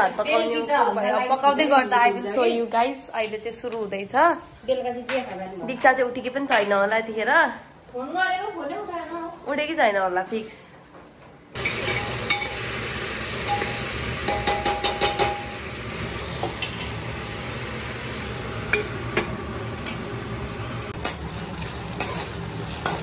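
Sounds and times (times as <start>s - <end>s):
food sizzling: 11.6s - 23.0s
metal spoon knocking cooking pot: 13.5s - 15.5s.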